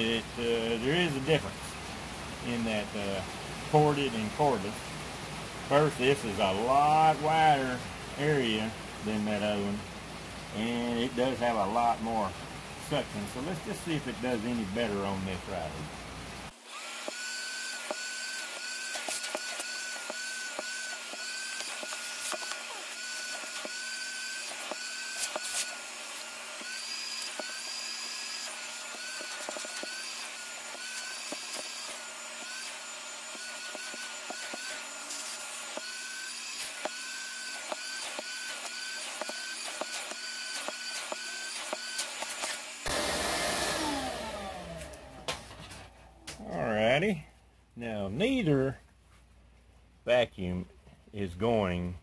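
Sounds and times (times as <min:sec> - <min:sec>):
vacuum motor winding down: 0:16.6 - 0:45.6
vacuum cleaner running: 0:16.6 - 0:45.9.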